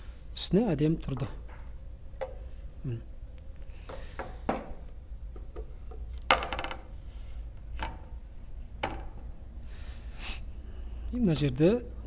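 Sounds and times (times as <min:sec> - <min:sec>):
knocks and clunks of handling: 0:01.0 - 0:02.7, 0:03.8 - 0:09.3.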